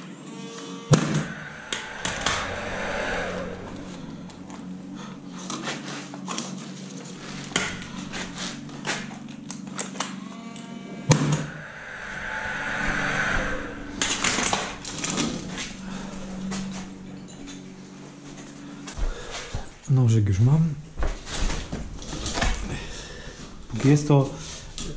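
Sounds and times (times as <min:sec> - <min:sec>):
rushing noise: 0:00.9 - 0:05.6, 0:07.3 - 0:08.7, 0:11.2 - 0:17.1.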